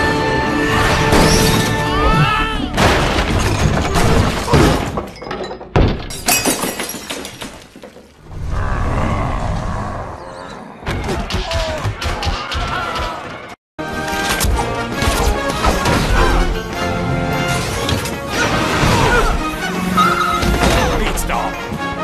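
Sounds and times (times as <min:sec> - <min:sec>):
crashes and smashing: 0:02.7 - 0:08.2
action soundtrack music: 0:11.2 - 0:22.0.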